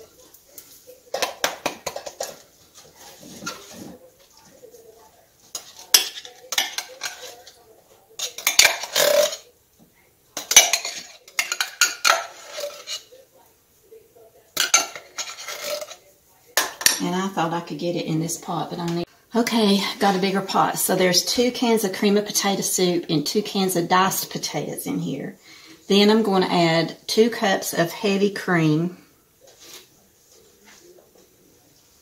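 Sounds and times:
metal spoon scraping tin can: 0:08.2 - 0:09.5, 0:10.4 - 0:13.1, 0:14.6 - 0:16.0.

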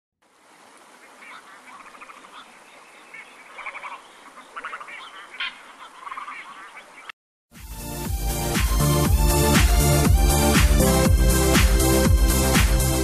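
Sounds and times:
herons calling harshly: 0:00.9 - 0:07.1.

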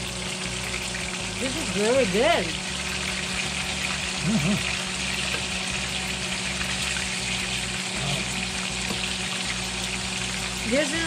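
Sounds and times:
chicken frying in hot oil: 0:00.0 - 0:11.0
person humming: 0:04.2 - 0:04.7.

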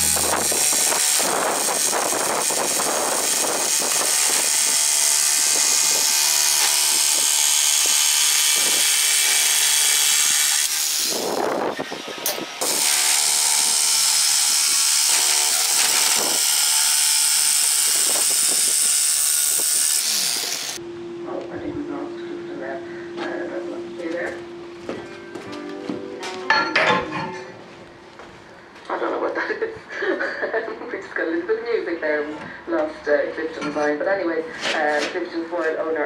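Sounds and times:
electric jigsaw cutting steel: 0:00.0 - 0:20.8.

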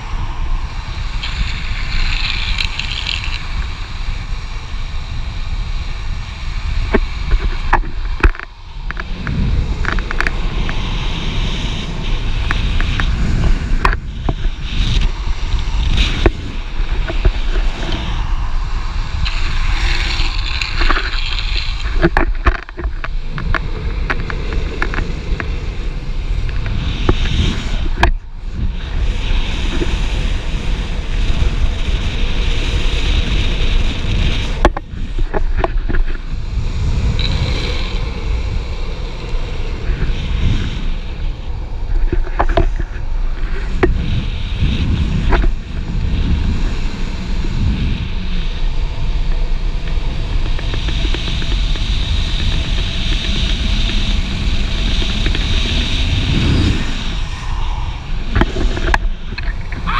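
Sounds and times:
longboard wheels rolling on asphalt: 0:00.0 - 0:59.9
wind buffeting microphone: 0:00.0 - 0:59.9
wheels hissing in slides: 0:10.4 - 0:22.1.

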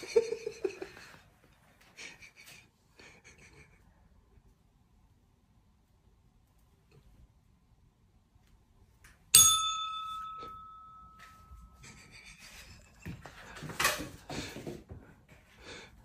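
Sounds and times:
bright bell ding: 0:09.4 - 0:11.8.

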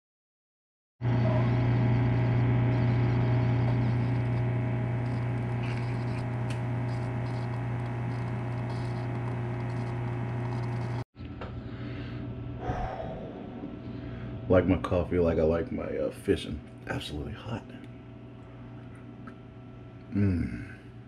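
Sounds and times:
coffee maker pump humming: 0:01.0 - 0:11.0.

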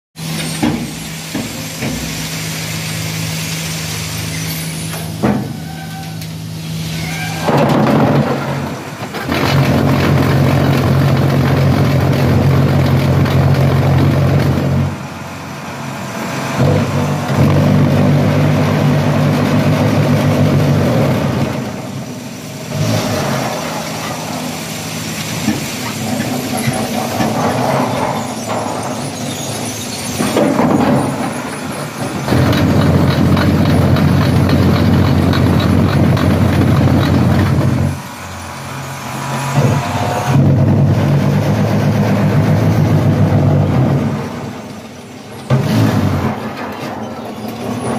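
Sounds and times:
mechanical clatter: 0:30.2 - 0:38.0.

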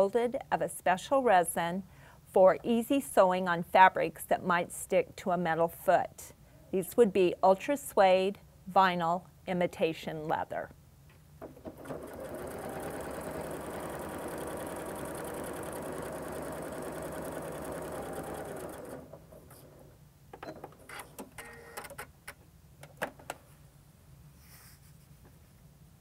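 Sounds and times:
electric sewing machine stitching: 0:11.6 - 0:19.9.

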